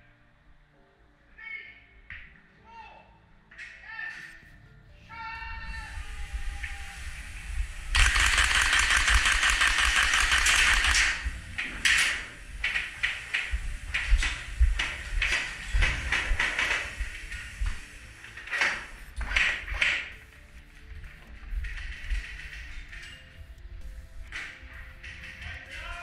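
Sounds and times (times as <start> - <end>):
airsoft gunfire bursts: 8.0 - 11.3.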